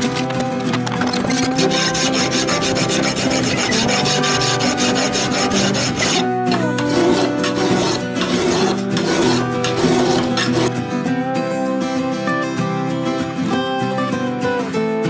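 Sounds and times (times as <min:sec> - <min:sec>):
file rasping on knife blade: 0:00.0 - 0:10.8.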